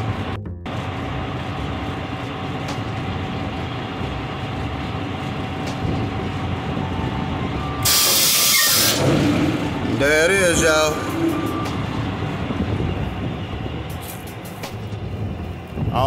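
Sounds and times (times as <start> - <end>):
truck engine rumble: 0.0 - 16.0
compressed air hissing: 7.8 - 9.1.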